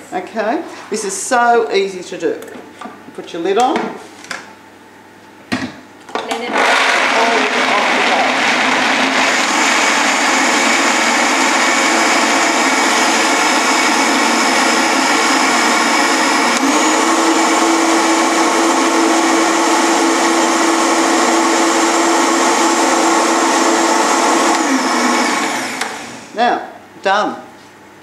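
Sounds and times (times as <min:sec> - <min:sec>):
blender running: 0:06.3 - 0:26.4.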